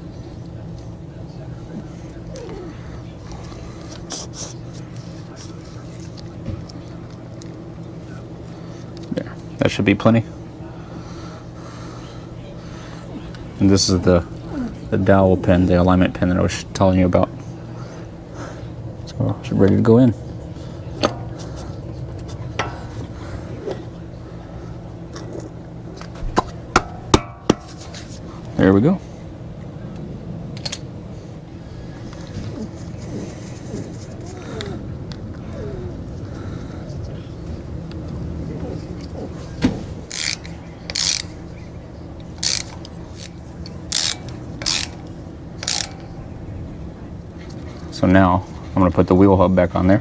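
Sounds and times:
steady low hum: 0:00.0 - 0:50.0
metal clicks and scrapes: 0:42.3 - 0:46.1.

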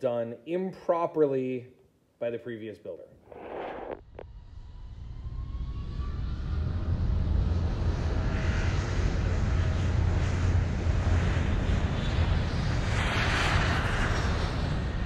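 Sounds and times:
faint rising whine: 0:03.3 - 0:09.4
aircraft engine rumble: 0:06.6 - 0:15.0.

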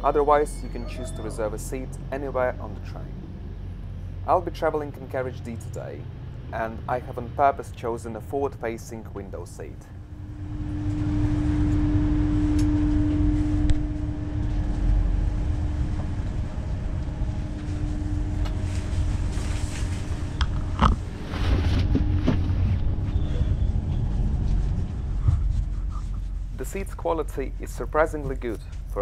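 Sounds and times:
electric train carriage hum: 0:00.0 - 0:29.0
steady tone: 0:09.3 - 0:29.0.

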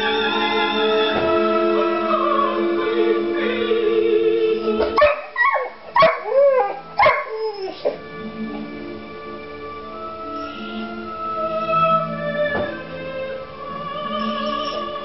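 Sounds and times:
classical string music: 0:00.0 - 0:05.0, 0:06.3 - 0:15.0
puppy howling: 0:04.9 - 0:08.1, 0:14.1 - 0:15.0.

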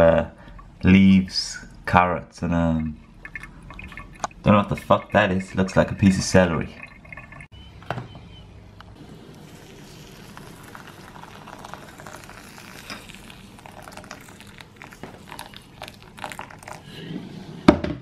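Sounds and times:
hot water pouring into bowl: 0:09.0 - 0:17.0.

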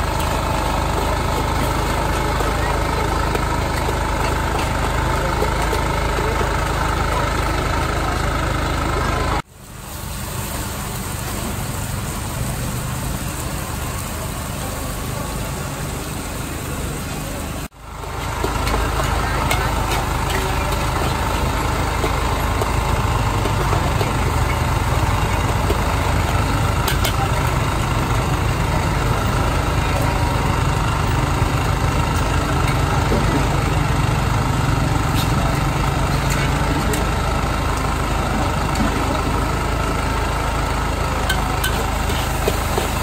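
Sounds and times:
gas burner roaring: 0:00.0 - 0:43.0
fish sizzling on a griddle: 0:09.5 - 0:17.0, 0:41.4 - 0:43.0.

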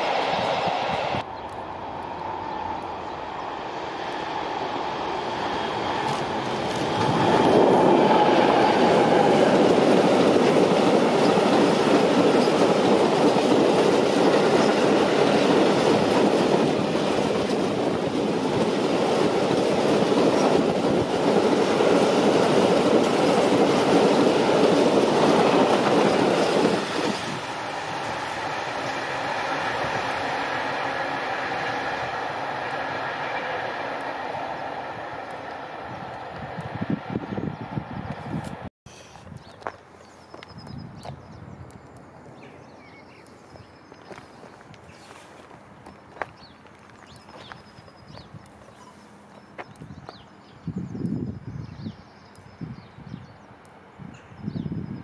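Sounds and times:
freight wagons rolling on rails: 0:05.5 - 0:30.7.

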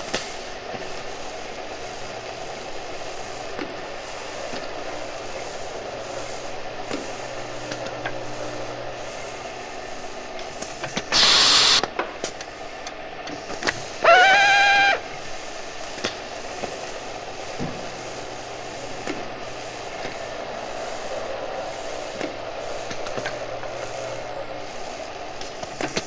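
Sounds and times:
harsh hissing burst: 0:11.0 - 0:11.9, 0:13.7 - 0:15.8
electric drill motor whining: 0:11.2 - 0:11.8, 0:14.0 - 0:15.0.

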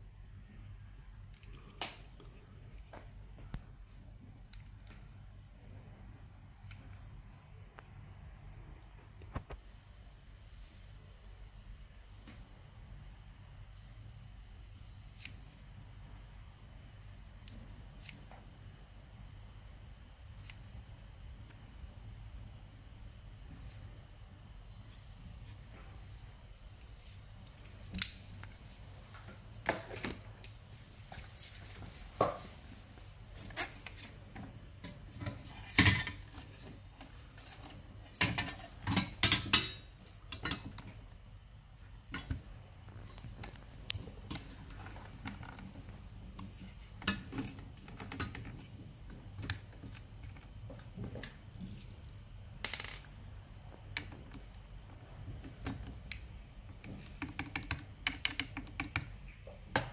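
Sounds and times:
faint low hum: 0:00.0 - 0:59.9
small clicks and knocks of tools: 0:33.4 - 0:41.1, 0:42.0 - 0:59.9.

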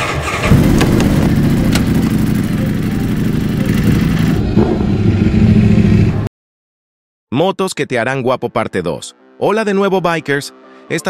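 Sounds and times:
motorcycle engine rumbling: 0:00.2 - 0:06.3.

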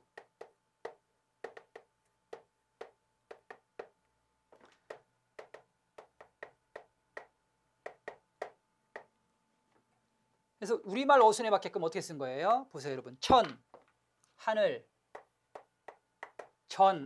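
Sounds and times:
chalk tapping on chalkboard: 0:00.0 - 0:04.0, 0:04.8 - 0:09.1, 0:15.1 - 0:16.6.

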